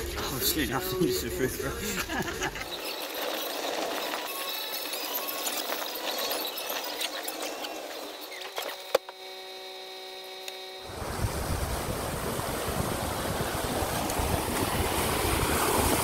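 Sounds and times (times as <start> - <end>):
steady hum: 0.0 - 2.8, 7.7 - 16.0
water splashing around wheels: 10.9 - 16.0
wind on microphone: 10.9 - 16.0.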